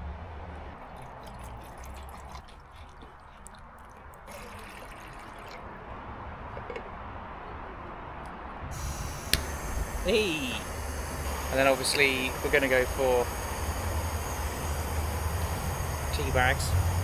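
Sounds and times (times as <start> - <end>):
water pouring into cup: 0.8 - 5.8
gas hissing: 8.7 - 17.0.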